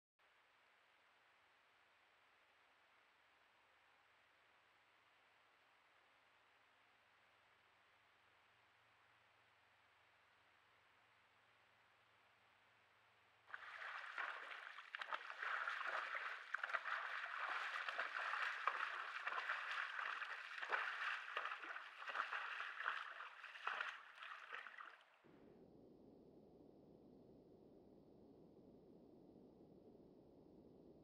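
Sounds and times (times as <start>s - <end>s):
moose splashing through water: 13.5s - 25.2s.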